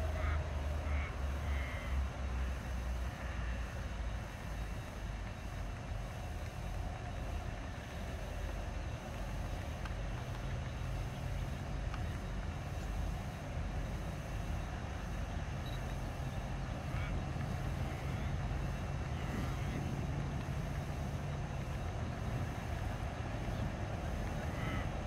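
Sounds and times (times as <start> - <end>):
distant freight train rumble: 0.0 - 25.0.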